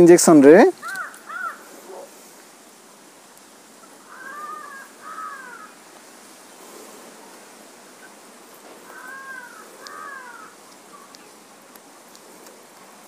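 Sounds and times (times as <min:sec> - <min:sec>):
faint steady hiss: 0:00.0 - 0:13.0
crow cawing: 0:00.8 - 0:02.1, 0:04.0 - 0:05.9, 0:08.8 - 0:10.6.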